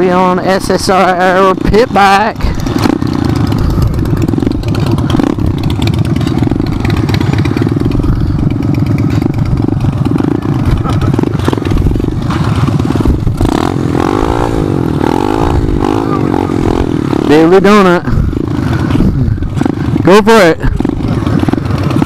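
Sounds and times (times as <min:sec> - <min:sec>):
pit bike engine revving: 0:00.0 - 0:22.0.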